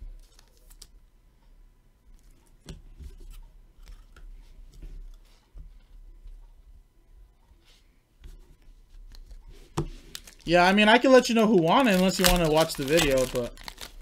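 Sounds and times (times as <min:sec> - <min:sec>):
cards rustling and scraping: 0:09.0 - 0:11.0, 0:11.6 - 0:14.0.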